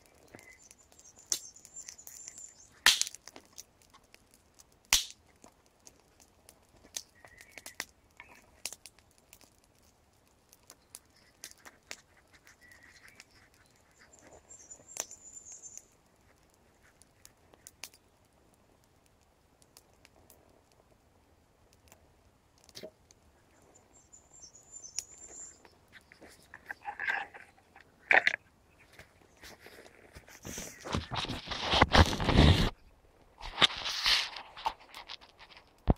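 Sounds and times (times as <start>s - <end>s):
fire crackling and popping: 0.0s - 35.9s
bird chirping: 0.1s - 2.8s, 7.1s - 8.4s, 12.4s - 15.9s, 23.4s - 28.0s.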